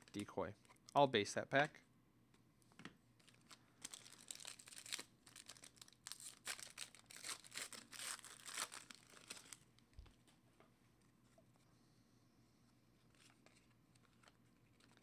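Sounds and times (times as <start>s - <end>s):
foil pack tearing and crinkling: 3.2s - 9.6s.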